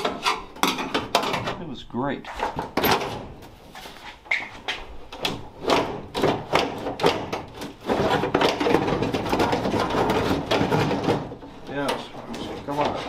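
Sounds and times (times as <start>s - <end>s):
knocks and clunks in metal door: 2.5s - 3.4s
steady scraping: 7.7s - 13.0s.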